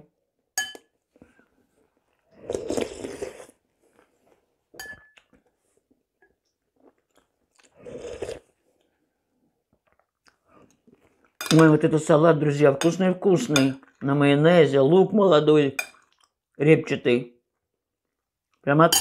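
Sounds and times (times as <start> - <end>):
metal spoon clinking on bowl: 0.6 - 0.9, 4.8 - 5.2
sipping and chewing: 2.0 - 4.3, 6.4 - 9.0, 9.8 - 11.4.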